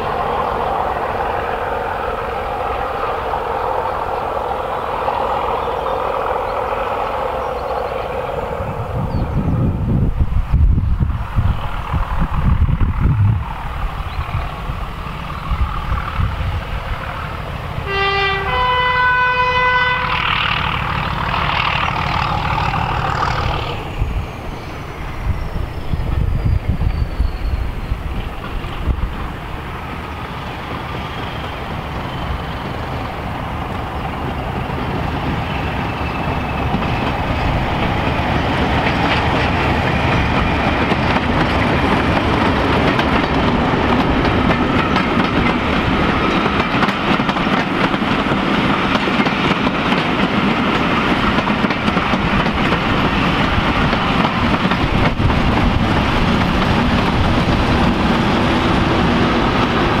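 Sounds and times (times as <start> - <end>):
diesel locomotive engine: 0.0 - 60.0
train wheels clicking over rail joints: 20.1 - 60.0.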